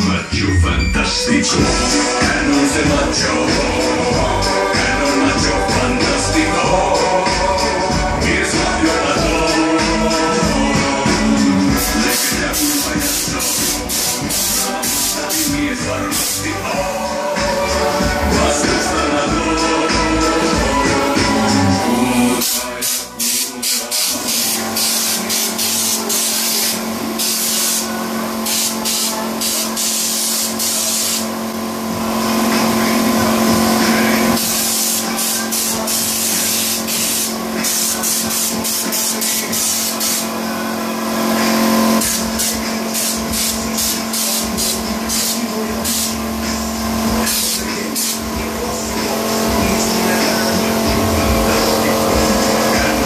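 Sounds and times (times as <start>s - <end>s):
steady hum: 0.0s - 53.0s
spray gun hissing: 11.1s - 18.0s, 21.5s - 31.5s, 34.0s - 40.5s, 42.0s - 46.3s, 47.2s - 52.8s.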